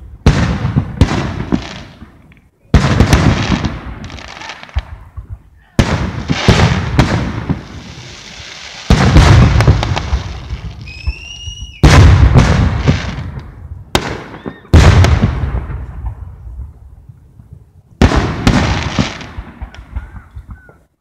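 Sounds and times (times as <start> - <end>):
fireworks booming: 0.0 - 20.9
fireworks crack: 0.0 - 21.0
high whistle: 10.8 - 11.8.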